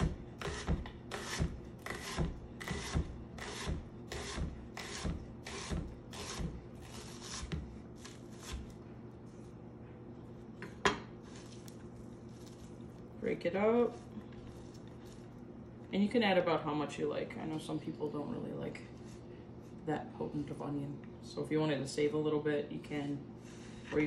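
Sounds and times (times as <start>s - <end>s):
knife slicing onion on board: 0.0s - 8.8s.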